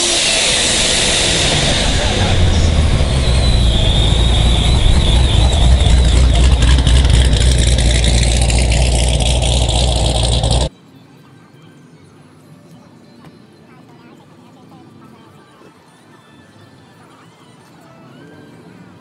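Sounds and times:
car engine deep exhaust drone: 0:00.0 - 0:10.7.

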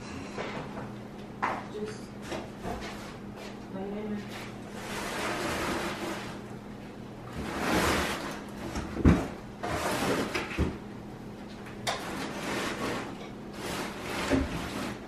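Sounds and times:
knocks and thumps: 0:08.7 - 0:09.4.

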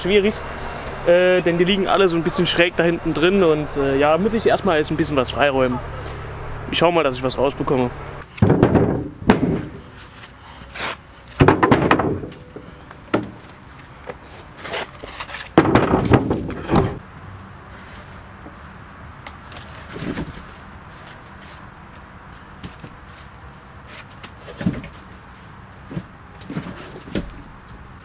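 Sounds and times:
wooden logs thudding and clattering: 0:08.3 - 0:17.0, 0:19.3 - 0:21.7, 0:22.5 - 0:27.7.

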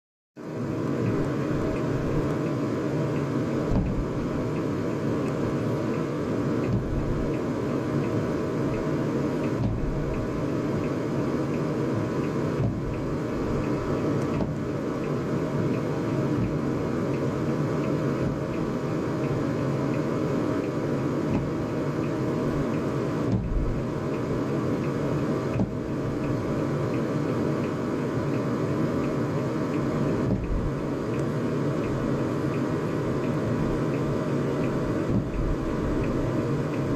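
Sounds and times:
car cabin rumble and hum: 0:00.4 - 0:36.9
muffled fireworks thumps: 0:03.7 - 0:04.1.

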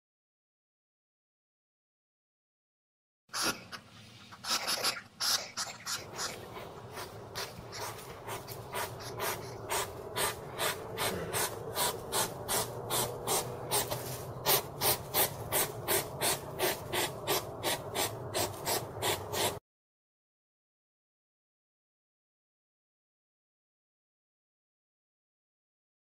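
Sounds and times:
hedgehog snuffling and sniffing: 0:03.3 - 0:19.6.

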